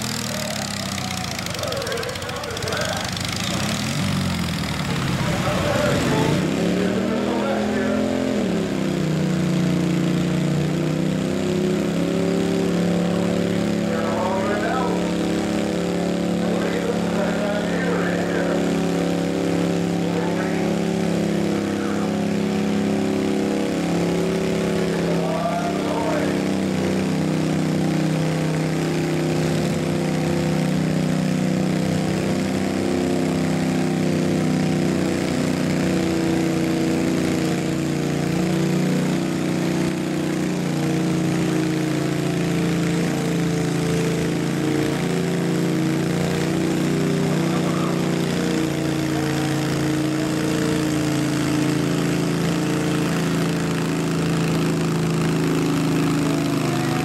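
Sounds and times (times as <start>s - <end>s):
lawn mower engine under load: 0.0s - 57.0s.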